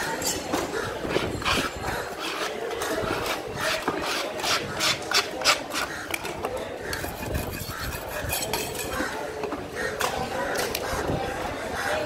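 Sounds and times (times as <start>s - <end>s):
knife scraping fish scales: 1.1s - 5.9s, 7.0s - 9.0s.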